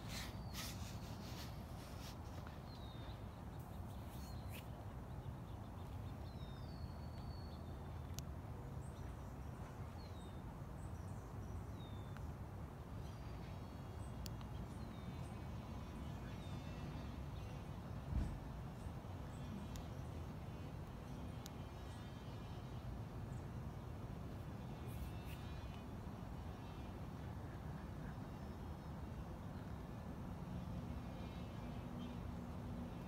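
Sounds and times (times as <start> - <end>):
small birds chirping: 0.0 - 10.4.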